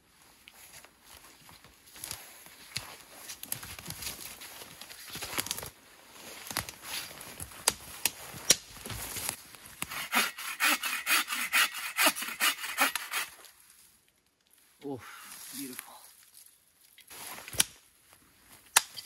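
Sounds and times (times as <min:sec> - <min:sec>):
twigs snapping: 0:02.0 - 0:05.7, 0:06.4 - 0:09.9
hand saw cutting branch: 0:09.8 - 0:13.5.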